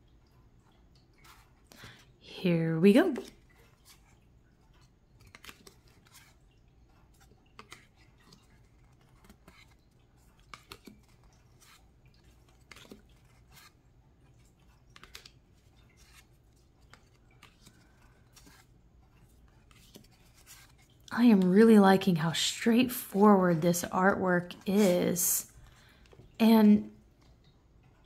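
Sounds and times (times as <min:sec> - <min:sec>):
cards sliding and clicking: 0:10.4 - 0:11.8, 0:12.4 - 0:13.7, 0:14.9 - 0:15.4, 0:24.7 - 0:25.2.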